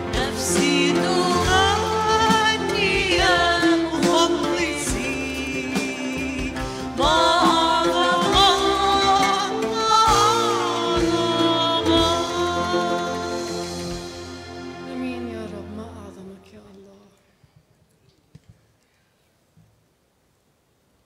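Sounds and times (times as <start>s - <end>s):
drums: 0.0s - 15.8s
women singing worship song: 0.0s - 16.2s.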